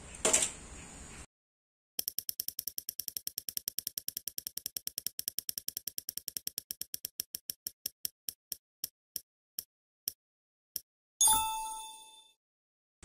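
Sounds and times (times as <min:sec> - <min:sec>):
prize wheel ticking: 0:02.0 - 0:08.2.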